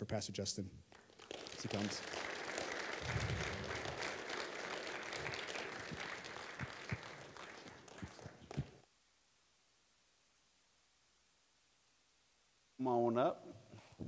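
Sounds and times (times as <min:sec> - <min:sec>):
congregation applauding: 0:00.9 - 0:08.8.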